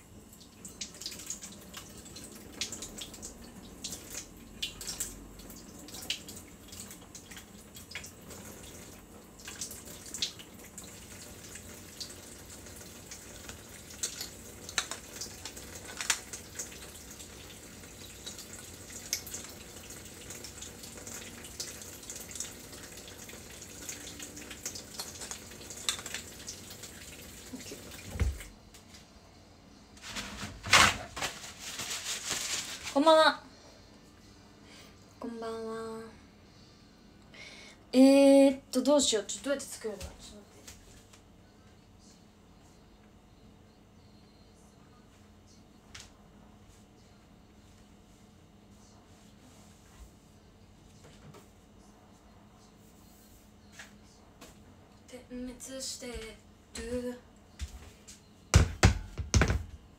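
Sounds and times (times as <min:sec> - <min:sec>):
tap water running into sink: 0:00.4 - 0:28.5.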